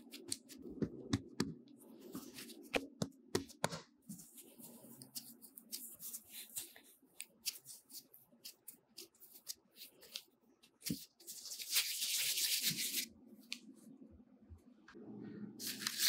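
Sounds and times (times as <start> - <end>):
hands pinching dough: 2.3 - 11.2.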